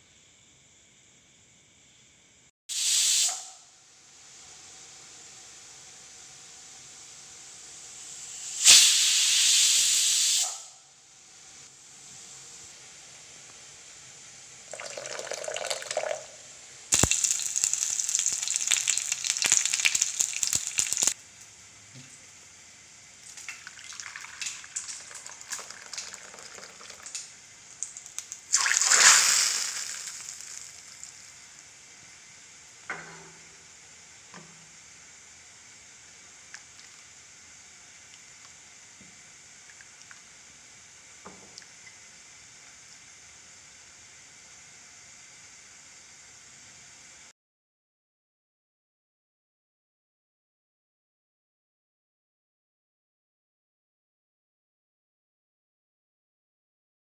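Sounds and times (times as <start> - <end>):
pressure cooker hissing steam: 2.7 - 21.2, 29.0 - 32.8
liquid pouring into a bowl: 14.7 - 16.4, 17.0 - 21.2, 23.2 - 31.3.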